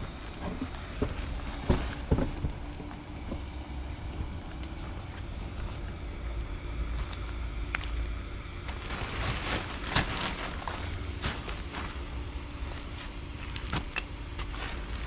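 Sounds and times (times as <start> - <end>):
blower fan humming: 0.0 - 15.0
rustling and light knocking: 0.3 - 3.6.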